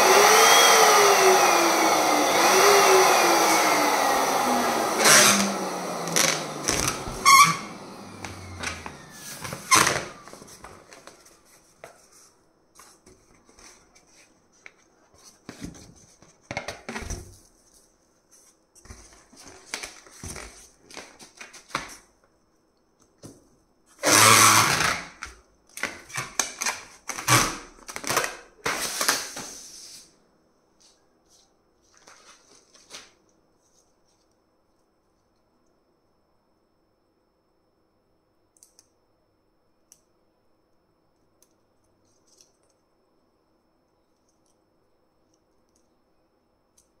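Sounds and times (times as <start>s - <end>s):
latex balloon rubbing and squeaking: 6.1s - 7.8s, 9.0s - 10.4s.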